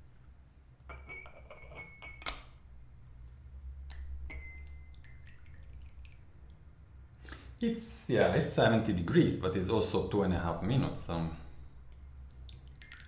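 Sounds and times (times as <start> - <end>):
porcelain cups clinking: 0.9 - 2.5, 3.9 - 5.5.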